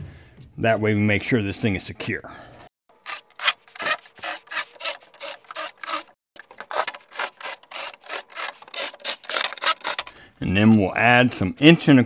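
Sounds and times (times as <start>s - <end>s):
drill boring into wood: 3.0s - 10.2s.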